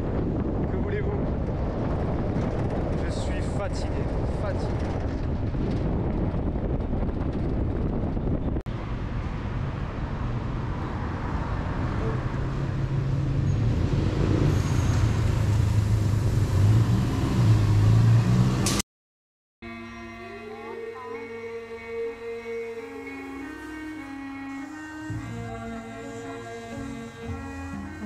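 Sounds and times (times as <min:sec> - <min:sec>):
road and wind noise: 0:00.0 - 0:18.8.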